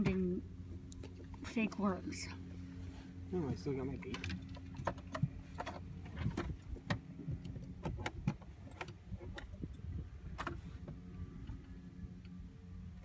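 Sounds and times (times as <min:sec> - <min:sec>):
boat motor humming: 0:00.0 - 0:13.0
sharp clicks and knocks: 0:03.9 - 0:11.0.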